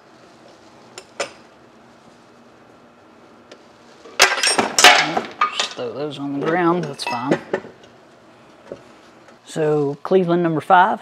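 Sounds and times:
faint steady hum: 0.0s - 11.0s
metallic clanking and clattering: 4.2s - 7.6s.

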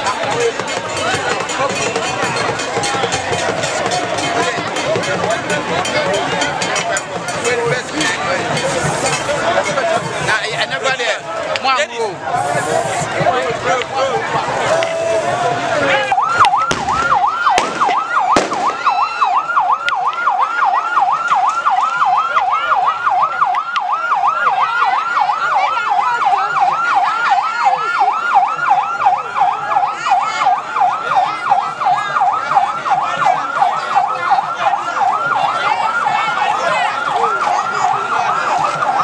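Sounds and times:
police siren yelping: 0.0s - 39.0s.

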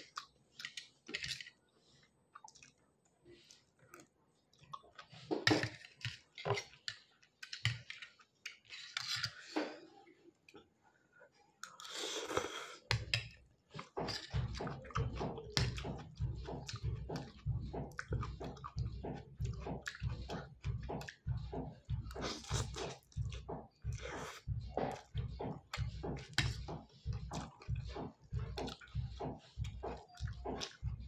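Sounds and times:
wet chewing with smacking: 13.7s - 31.0s.

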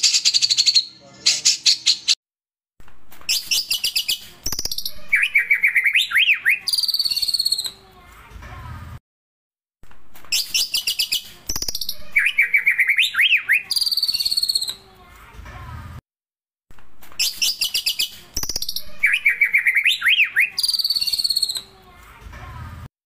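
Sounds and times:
songbird singing trills and whistles: 0.0s - 2.2s, 3.3s - 7.8s, 10.4s - 14.8s, 17.2s - 21.7s.

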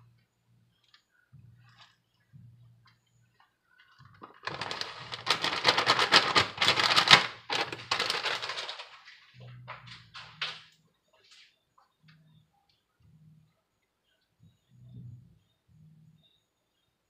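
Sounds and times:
plastic bag crinkling: 4.1s - 9.3s.

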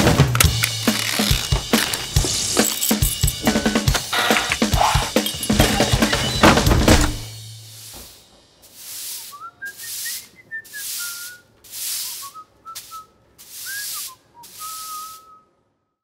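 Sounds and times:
push broom sweeping concrete: 0.6s - 6.4s, 7.6s - 15.4s
person whistling a tune: 9.3s - 15.5s.

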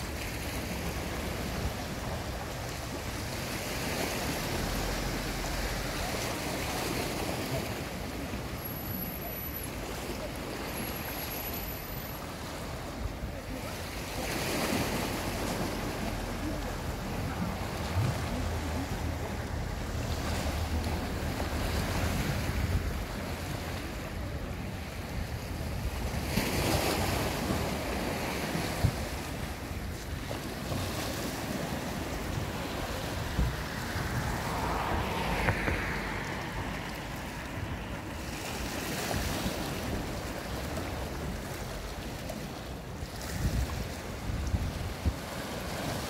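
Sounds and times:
waves washing against seawall: 0.0s - 46.0s
wind buffeting microphone: 15.3s - 46.0s.

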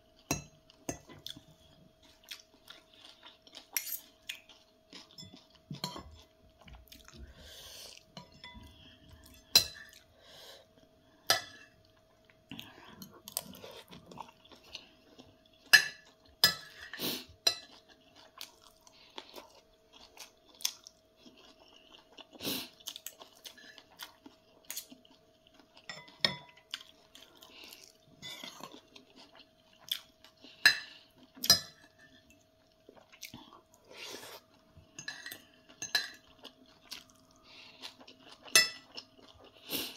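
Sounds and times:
chewing and mouth noises: 0.7s - 8.2s, 17.2s - 31.5s, 32.2s - 39.9s
cutlery clinking on a plate: 3.7s - 4.2s, 15.7s - 17.7s, 35.0s - 36.3s, 38.5s - 38.9s.

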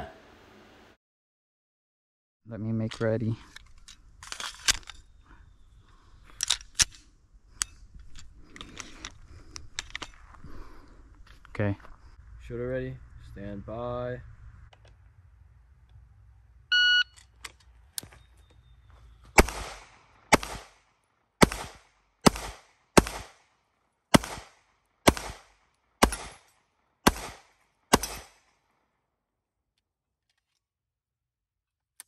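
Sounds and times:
shot timer beep: 16.7s - 17.2s
pistol shots with echo: 19.4s - 20.8s, 21.4s - 23.4s, 24.1s - 28.5s.

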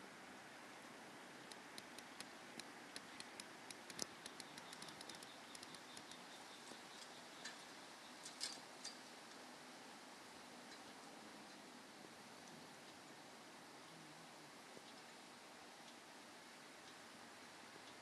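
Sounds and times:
faint small clicks and ticks: 1.4s - 9.5s, 10.6s - 13.2s, 14.6s - 18.0s.

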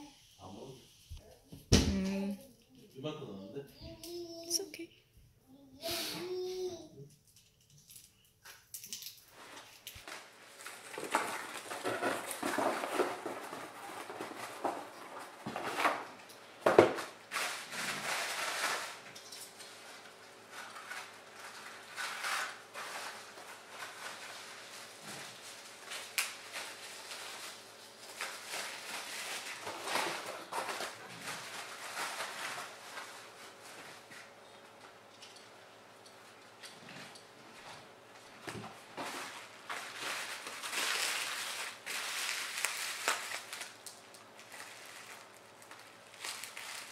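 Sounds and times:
artificial tree branches rustling: 38.8s - 46.9s.

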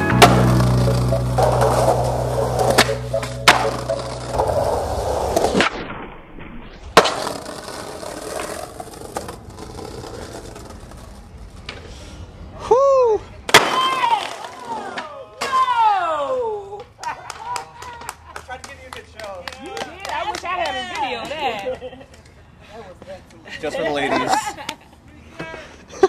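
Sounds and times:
skateboard wheels rolling on concrete: 0.0s - 26.0s
skateboard clacks: 0.1s - 5.7s, 7.0s - 11.9s.

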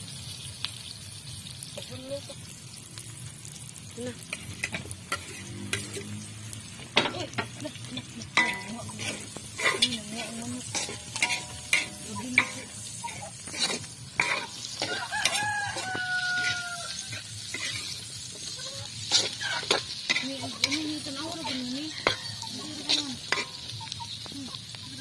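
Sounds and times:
food sizzling: 0.0s - 25.0s
spatula scraping a steel wok: 4.3s - 24.2s
rooster crowing: 14.8s - 17.4s.

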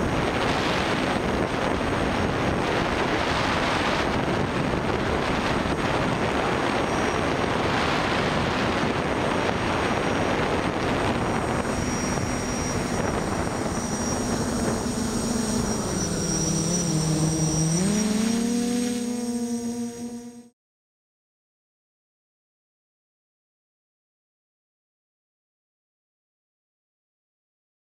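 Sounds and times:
drone motors whining: 0.0s - 20.5s.

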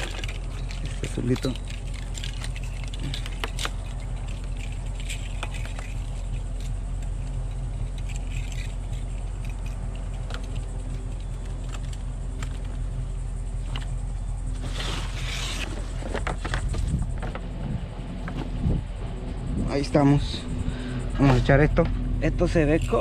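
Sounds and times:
vehicle engine humming: 0.0s - 23.0s.

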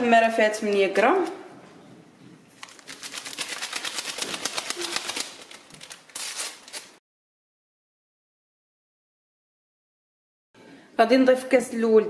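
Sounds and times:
paper sachets tearing: 2.6s - 7.0s
powder crackling through sieve: 2.6s - 7.0s.

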